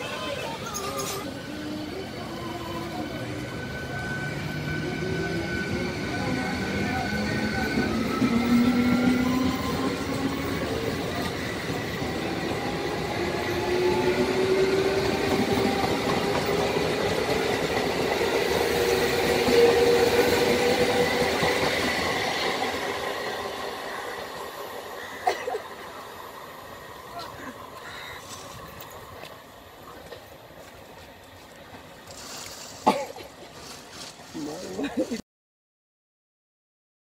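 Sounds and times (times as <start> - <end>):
electric train motors whining: 0.0 - 31.0
train wheels clattering on rails: 7.5 - 23.2.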